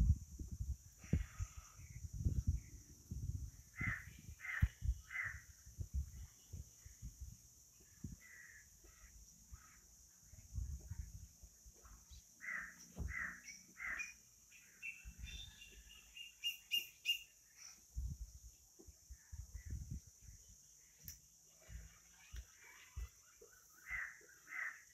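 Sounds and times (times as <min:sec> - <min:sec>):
birds calling: 0:03.6 - 0:07.1, 0:07.7 - 0:10.6, 0:11.7 - 0:17.8, 0:20.8 - 0:24.9
high quick bird chirps: 0:13.2 - 0:17.8.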